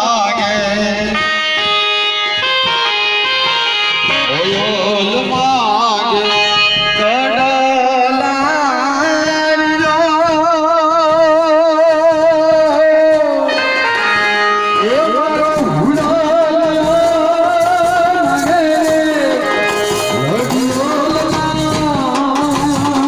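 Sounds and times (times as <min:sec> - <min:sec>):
amplified band music over loudspeakers: 0:00.0 - 0:23.0.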